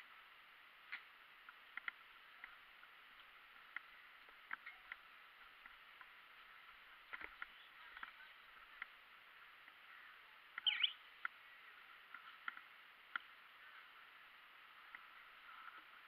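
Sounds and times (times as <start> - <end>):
faint steady hiss: 0.0 - 16.0
light ticks: 0.9 - 6.1
bird chirp: 9.8 - 12.4.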